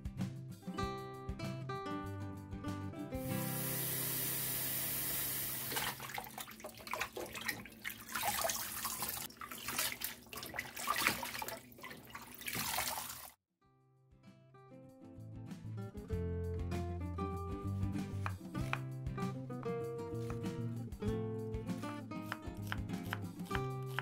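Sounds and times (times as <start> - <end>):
water sloshing as hands rinse: 5.5 - 13.4.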